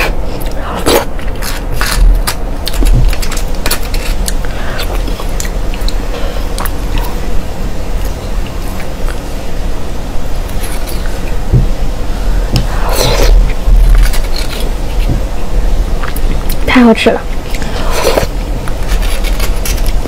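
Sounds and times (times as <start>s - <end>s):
eating sounds: 0.0s - 7.3s, 15.9s - 16.6s.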